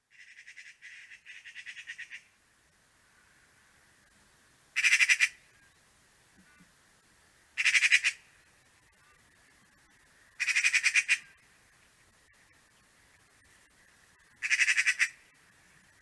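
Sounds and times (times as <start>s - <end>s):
magpie chattering: 4.8s - 5.4s, 7.6s - 8.2s, 10.4s - 11.3s, 14.4s - 15.2s.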